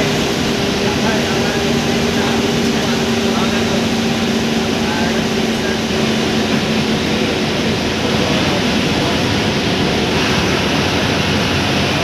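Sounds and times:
diesel bus engine running: 0.0 - 12.0.

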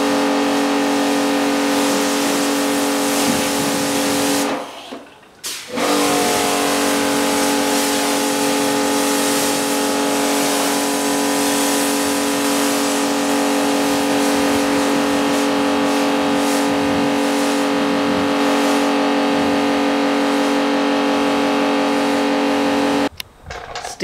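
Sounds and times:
water spraying on car: 0.0 - 23.1
pressure washer hum: 0.0 - 24.0.

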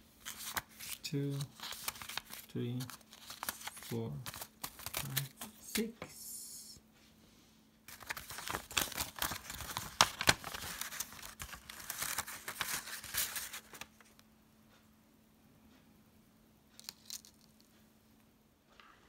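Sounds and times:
paper packet crinkling: 0.2 - 5.7, 7.9 - 14.2.

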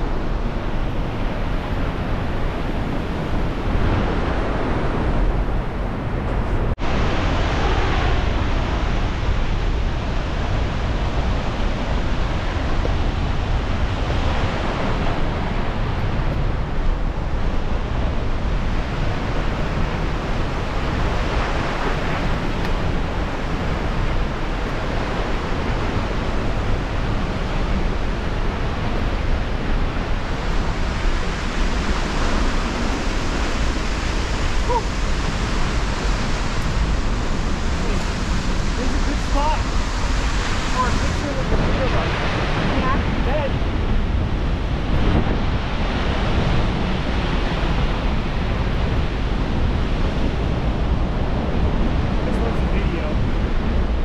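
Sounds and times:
waterfall roaring: 0.0 - 54.0
wind buffeting microphone: 0.0 - 54.0.

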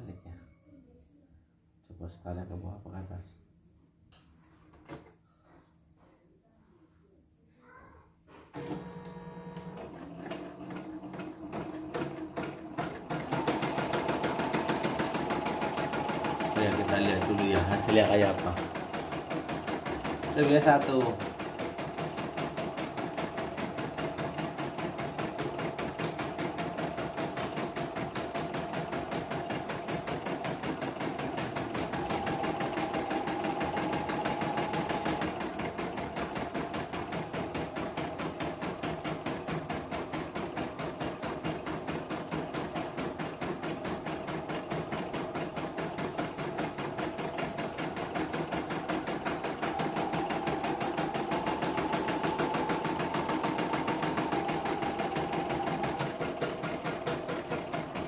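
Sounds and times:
embroidery machine stitching: 8.6 - 58.0
motor hum: 45.6 - 58.0.

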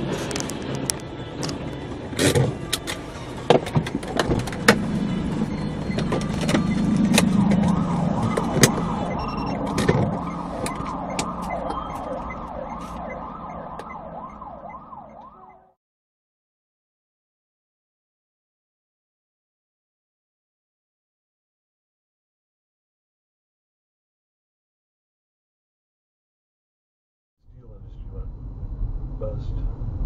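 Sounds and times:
vehicle drone: 0.0 - 15.7, 27.5 - 30.0
siren-like wail: 5.2 - 15.8.

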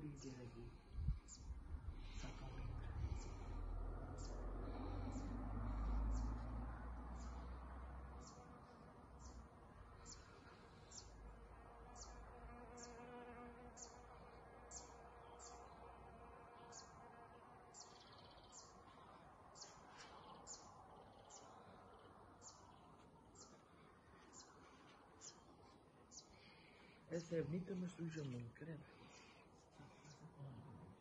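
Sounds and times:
insect buzzing: 12.0 - 18.0.

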